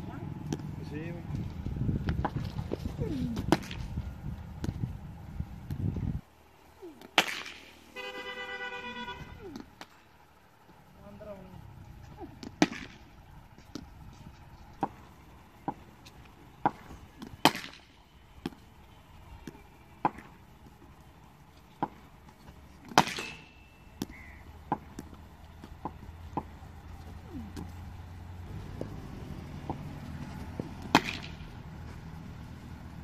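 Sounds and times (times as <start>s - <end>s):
cricket bat hitting ball: 7.0s - 7.6s, 16.6s - 18.6s, 22.8s - 26.6s, 30.8s - 31.5s.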